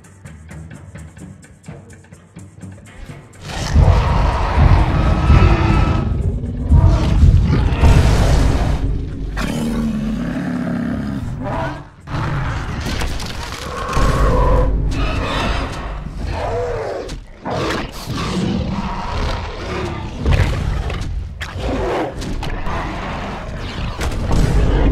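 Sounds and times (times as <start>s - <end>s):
deep low booms: 3.4s - 13.2s, 13.8s - 16.8s
dinosaur roars and growls: 3.4s - 24.9s.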